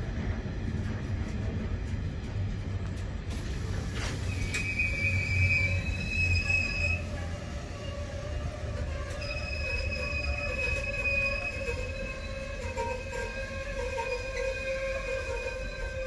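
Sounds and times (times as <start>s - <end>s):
train wheels rumbling: 0.0s - 16.0s
high wheel squeal: 4.2s - 16.0s.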